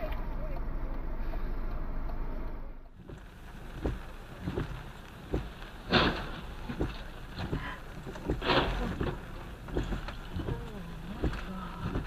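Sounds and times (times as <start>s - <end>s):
cars colliding: 2.2s - 12.0s
crash noise: 5.8s - 7.1s.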